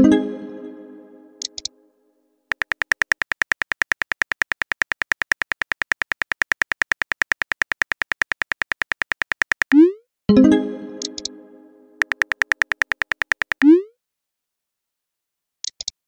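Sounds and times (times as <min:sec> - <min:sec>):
phone keyboard typing clicks: 0:02.5 - 0:09.8, 0:12.0 - 0:13.6.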